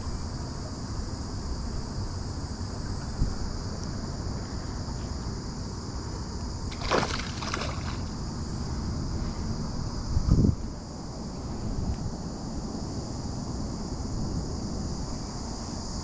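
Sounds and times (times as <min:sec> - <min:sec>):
wind noise on microphone: 0:01.4 - 0:04.3, 0:06.8 - 0:16.0
splash on water: 0:06.7 - 0:08.1.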